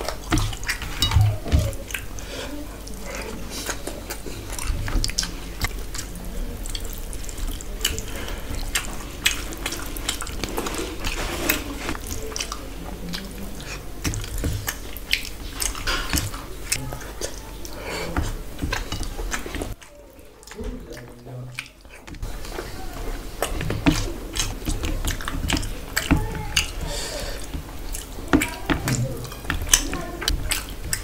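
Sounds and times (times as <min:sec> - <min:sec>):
open-mouthed chewing: 0:00.0 - 0:31.0.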